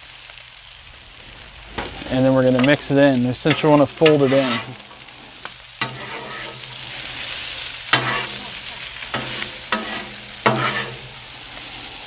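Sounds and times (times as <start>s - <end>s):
food sizzling on griddle: 0.0s - 12.0s
spatulas clacking on griddle: 2.6s - 5.0s, 5.8s - 11.7s
metal spatulas scraping: 3.5s - 4.9s, 5.8s - 11.3s.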